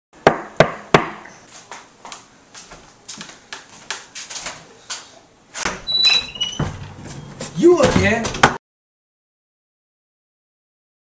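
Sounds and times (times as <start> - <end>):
footsteps walking: 1.4 - 8.6
knocks on door: 7.8 - 8.6.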